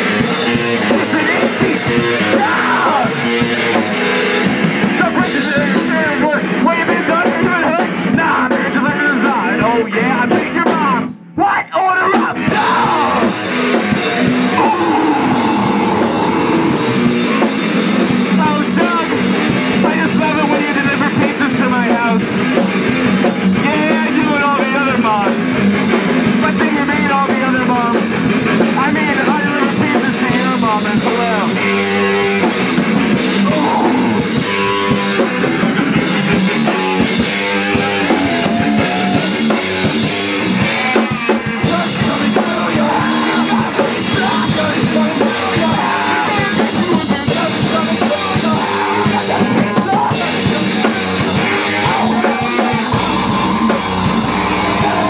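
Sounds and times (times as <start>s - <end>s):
live rock band playing: 0.0s - 11.3s, 12.0s - 55.0s
person singing: 0.9s - 3.2s, 12.1s - 17.5s, 33.4s - 34.7s, 41.2s - 55.0s.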